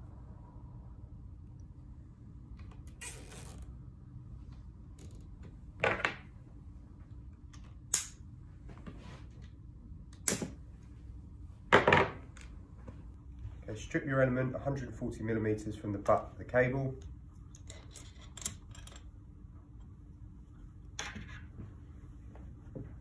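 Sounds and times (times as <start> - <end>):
cable ties zipping tight: 2.8 - 3.7.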